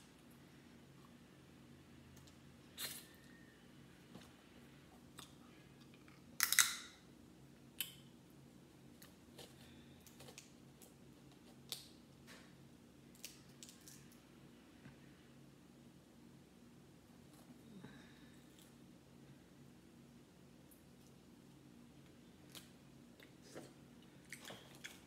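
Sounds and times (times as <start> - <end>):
faint low hum: 0.0 - 25.0
shellfish shells cracking: 6.4 - 6.9.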